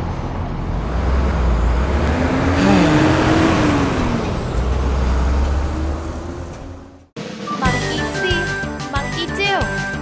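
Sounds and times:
vehicle engine passing: 0.0s - 7.1s
street traffic rumble: 0.0s - 7.2s.

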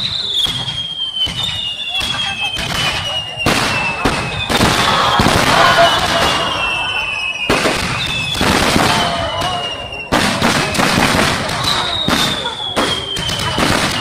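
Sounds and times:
high descending whistles: 0.0s - 10.1s
firework booms: 0.0s - 14.0s
firework crackling: 0.0s - 14.0s.

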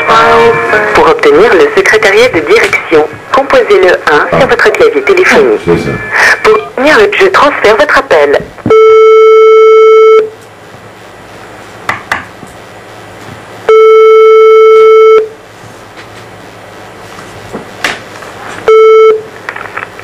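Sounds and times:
telephone ringback tone: 13.7s - 15.3s, 18.7s - 19.3s.

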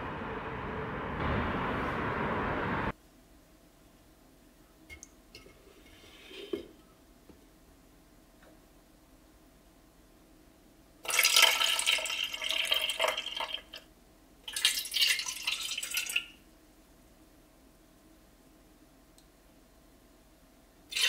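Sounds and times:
tea pouring into pot: 11.1s - 13.8s, 14.5s - 16.3s.

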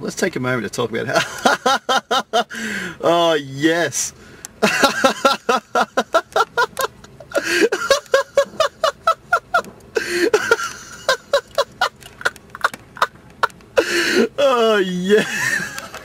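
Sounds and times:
person laughing hard: 1.2s - 2.8s, 4.6s - 16.0s
wheezy gasps for breath: 2.5s - 3.0s, 10.0s - 10.4s, 13.8s - 14.4s.

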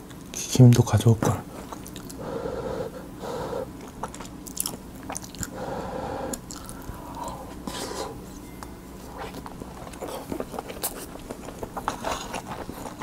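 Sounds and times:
chewing with wet mouth sounds: 1.5s - 2.2s, 3.7s - 5.7s, 6.3s - 8.1s, 9.0s - 13.0s.

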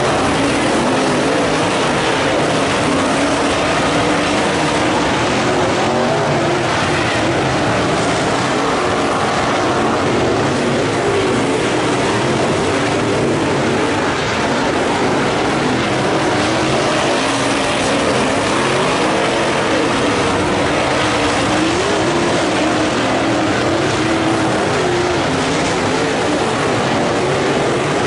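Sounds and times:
race car engines revving: 0.0s - 28.0s.

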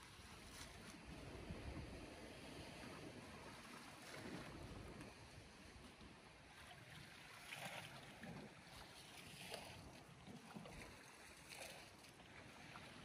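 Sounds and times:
faint water lapping: 0.0s - 13.0s
soft splashes: 3.2s - 5.4s, 6.4s - 13.0s.

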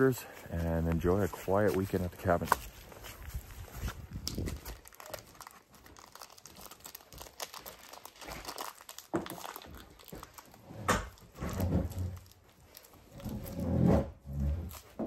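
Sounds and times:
plastic wrapper crinkling and tearing: 1.7s - 13.6s.

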